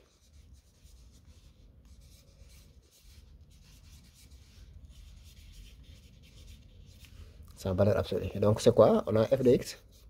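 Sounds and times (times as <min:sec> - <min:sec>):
marker writing on paper: 0:00.0 - 0:07.1.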